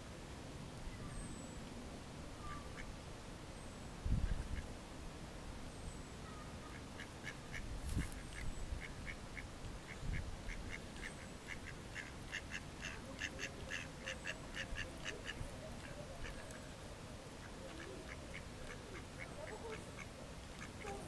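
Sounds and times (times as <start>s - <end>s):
ducks quacking: 10.5s - 16.5s.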